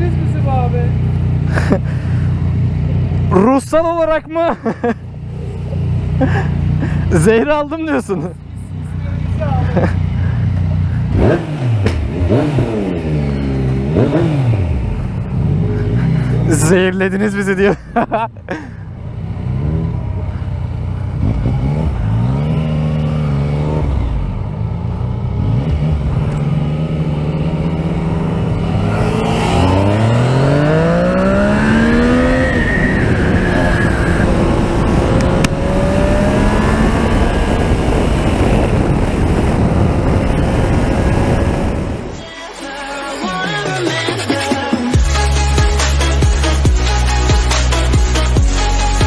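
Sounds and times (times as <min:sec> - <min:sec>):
motorcycle engine accelerating: 0:00.0 - 0:42.2
wind rushing over microphone: 0:27.3 - 0:42.2.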